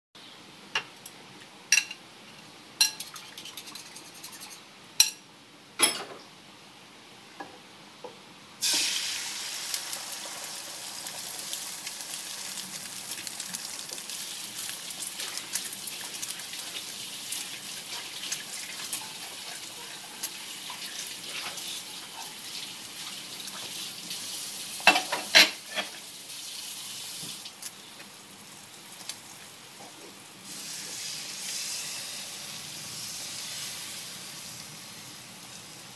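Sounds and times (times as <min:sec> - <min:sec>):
egg sizzling in a pan: 0:08.6 - 0:29.7, 0:30.4 - 0:35.9.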